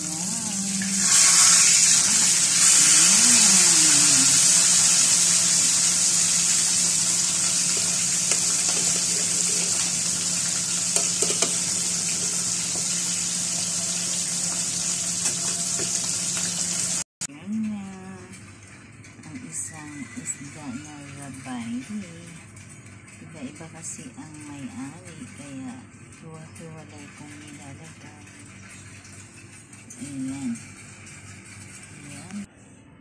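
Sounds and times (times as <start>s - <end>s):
fish sizzling in hot oil: 0.2s - 17.0s.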